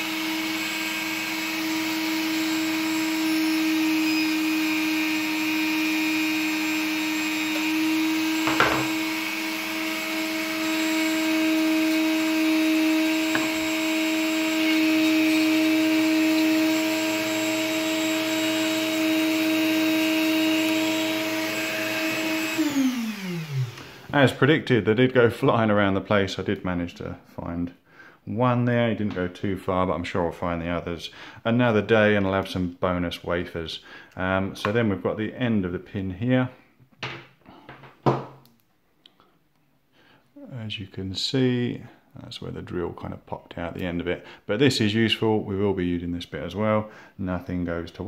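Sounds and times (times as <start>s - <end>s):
motor winding down: 0.0s - 24.0s
rotary tool running at high speed: 0.0s - 24.0s.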